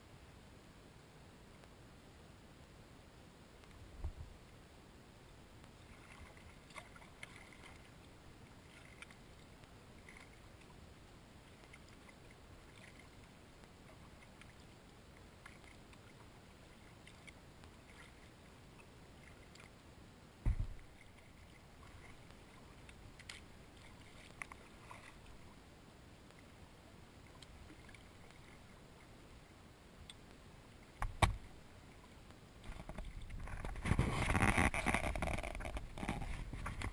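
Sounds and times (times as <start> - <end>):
paddle drips and splashes: 5.6 - 19.8, 20.4 - 25.6, 27.1 - 29.2
dull thumps: 20.4 - 20.8.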